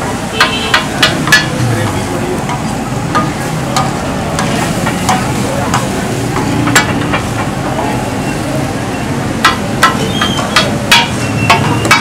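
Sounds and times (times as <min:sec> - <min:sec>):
chicken sizzling on a griddle: 0:00.0 - 0:12.0
utensils tapping metal: 0:09.4 - 0:12.0.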